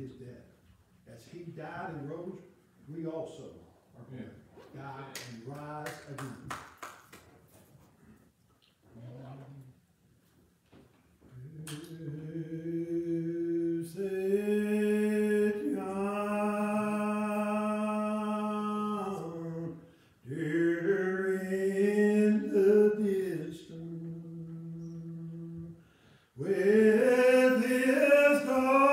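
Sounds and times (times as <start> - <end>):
person singing unaccompanied: 11.4 - 25.8, 26.4 - 28.9.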